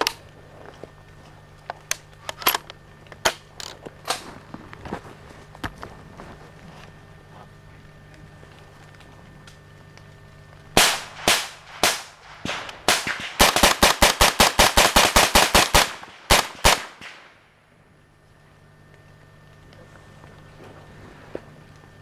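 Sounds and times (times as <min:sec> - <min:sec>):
gunshots with echo: 0:10.8 - 0:17.4.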